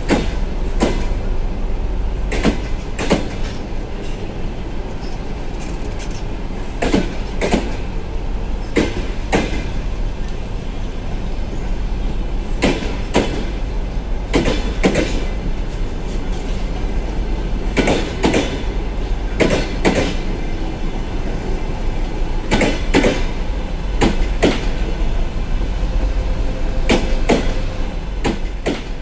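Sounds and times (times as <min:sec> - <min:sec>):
train wheels clacking over rail joint: 0:00.0 - 0:01.2, 0:02.3 - 0:07.9, 0:08.6 - 0:10.0, 0:12.6 - 0:13.6, 0:14.3 - 0:16.9, 0:17.6 - 0:18.8, 0:19.4 - 0:20.4, 0:22.4 - 0:23.4, 0:24.0 - 0:25.0, 0:26.8 - 0:29.0
train coaches rumbling past: 0:00.0 - 0:29.0.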